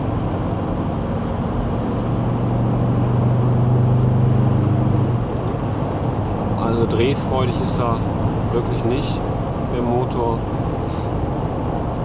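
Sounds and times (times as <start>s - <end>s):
diesel engine droning at full throttle: 0.0s - 12.0s
road noise: 0.0s - 12.0s.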